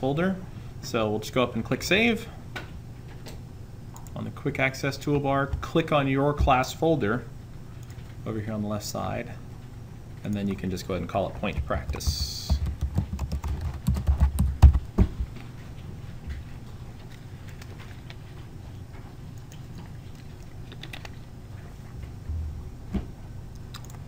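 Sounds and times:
low steady hum: 0.0s - 24.0s
keyboard typing clicks: 19.4s - 21.2s, 23.5s - 24.0s.

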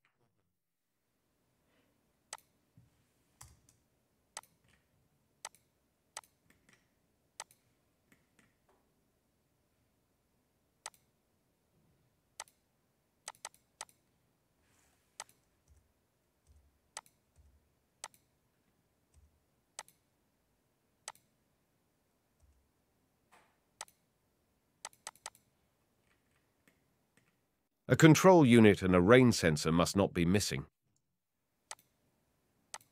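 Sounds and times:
computer mouse clicks: 4.4s - 4.8s, 5.4s - 8.6s, 10.8s - 11.1s, 12.4s - 12.6s, 13.3s - 14.0s, 15.2s - 15.8s, 16.5s - 18.3s, 19.1s - 20.0s, 21.1s - 21.3s, 23.8s - 24.0s, 24.8s - 25.5s, 31.7s - 31.9s.

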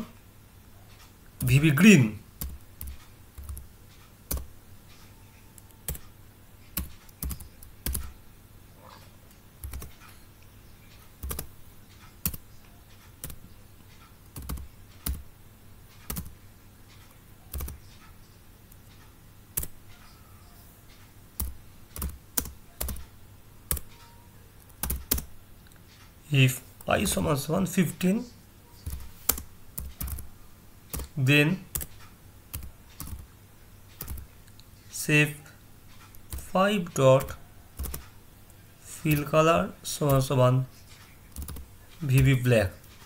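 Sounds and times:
computer keyboard typing: 2.3s - 8.2s, 9.6s - 10.2s, 10.9s - 15.3s, 15.9s - 25.3s, 28.8s - 33.3s, 33.9s - 34.3s, 35.9s - 38.2s, 38.9s - 43.0s.

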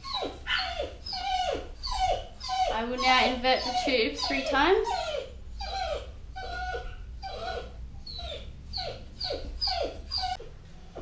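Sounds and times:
dog whimpering: 0.0s - 10.5s.

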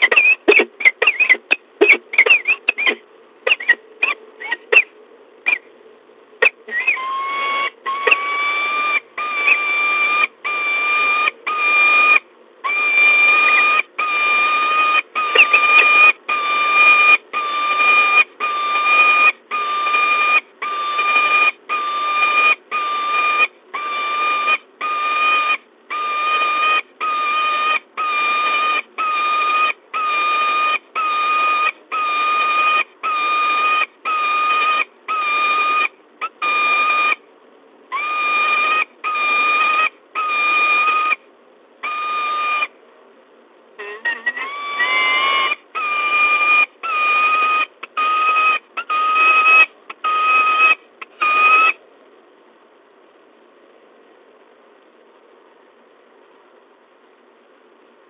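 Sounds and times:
falcon calling: 0.0s - 5.7s, 6.4s - 37.2s, 37.9s - 41.2s, 41.8s - 42.7s, 43.8s - 51.8s.

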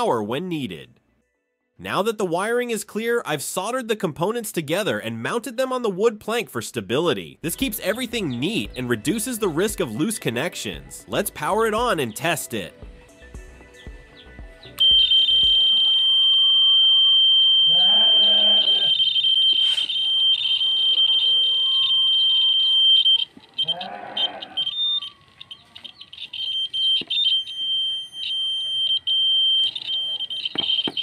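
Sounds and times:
high-pitched buzzer tone: 14.8s - 25.2s.

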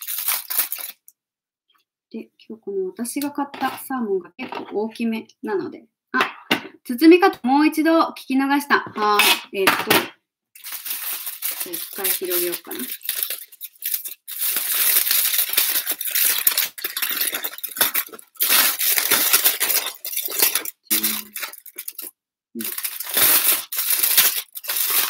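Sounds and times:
aluminium foil crinkling: 0.0s - 1.1s, 10.6s - 25.0s.

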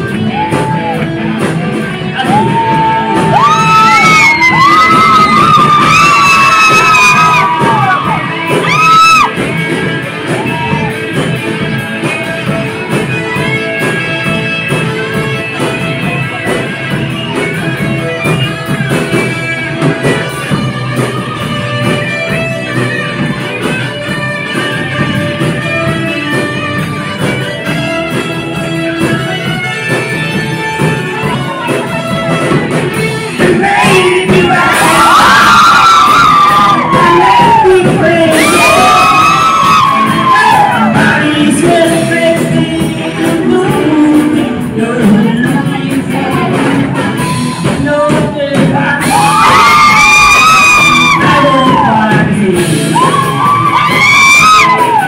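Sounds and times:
live rock band playing: 0.0s - 55.0s
singer shouting and singing: 2.1s - 9.4s, 33.3s - 55.0s.

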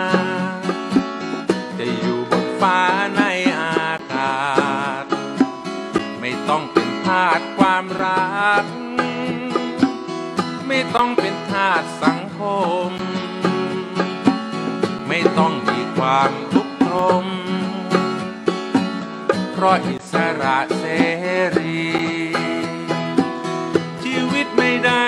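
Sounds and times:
band playing: 0.0s - 25.0s
plucked string instruments: 0.0s - 25.0s.

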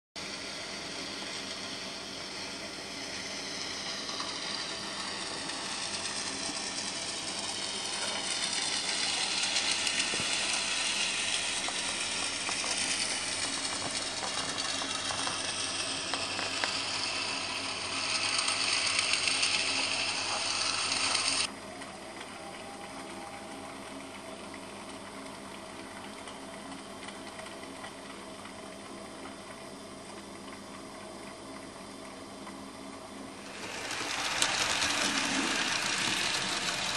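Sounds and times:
geared mechanism whirring and clicking: 1.2s - 21.5s, 33.4s - 36.9s.

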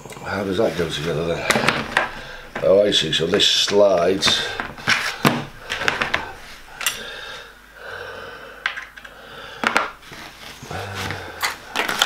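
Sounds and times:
cardboard rustling: 0.6s - 6.7s, 10.0s - 12.0s.

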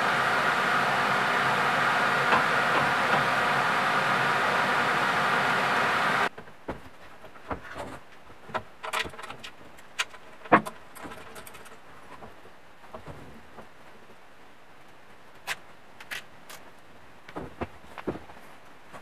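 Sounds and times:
loud steady hiss: 0.0s - 6.3s.

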